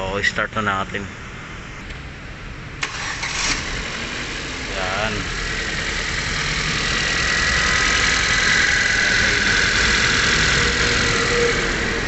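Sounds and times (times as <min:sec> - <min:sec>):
car engine idling: 0:02.8 - 0:12.0
high whine: 0:04.8 - 0:12.0.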